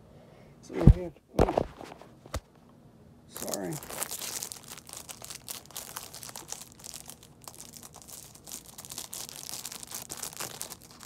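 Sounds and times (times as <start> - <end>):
plastic packaging crinkling: 3.3 - 11.0.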